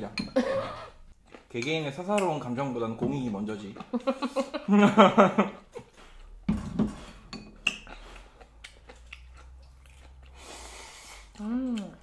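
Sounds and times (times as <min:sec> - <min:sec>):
chopsticks clinking on ceramic bowls: 0:07.3 - 0:08.0.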